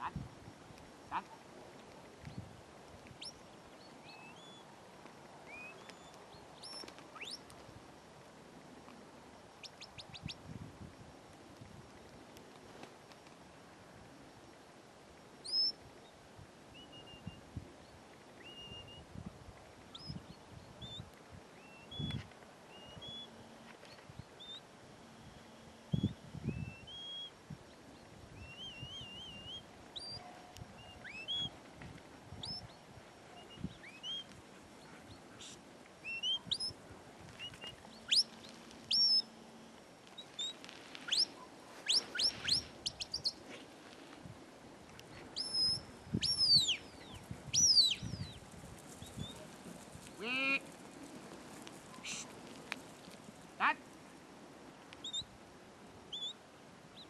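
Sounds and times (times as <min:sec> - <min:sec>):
short high whistles: 0:41.1 - 0:43.2.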